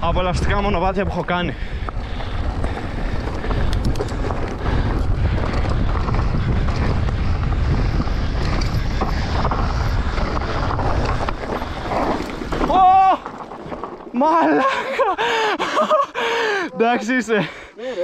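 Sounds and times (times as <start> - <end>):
wind buffeting microphone: 0.0 - 14.2
tyres on gravel trail: 0.0 - 18.0
bike clicks and rattles: 1.7 - 15.3.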